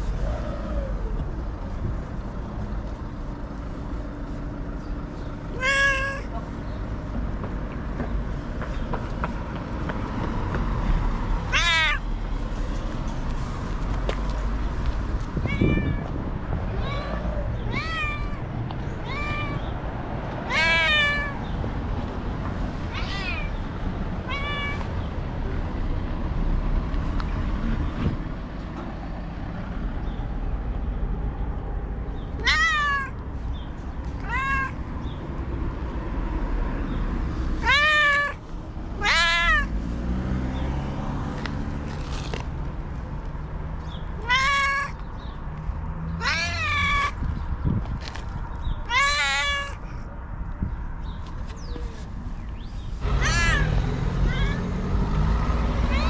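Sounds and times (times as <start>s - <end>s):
cat meowing: 5.5s - 6.3s, 11.5s - 12.1s, 15.4s - 19.7s, 20.4s - 21.4s, 22.9s - 23.6s, 24.2s - 24.9s, 32.4s - 33.2s, 34.2s - 34.8s, 37.6s - 38.4s, 39.0s - 39.7s, 44.2s - 45.0s, 46.2s - 47.2s, 48.8s - 49.8s, 53.2s - 54.7s.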